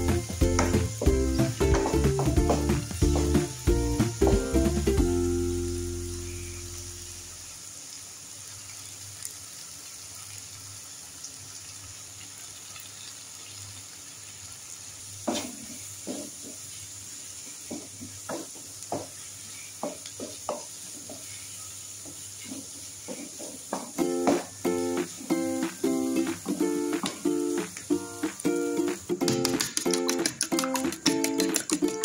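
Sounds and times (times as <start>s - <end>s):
vegetables sizzling in oil: 0.0s - 32.0s
wooden spatula scraping a pan: 17.6s - 23.8s.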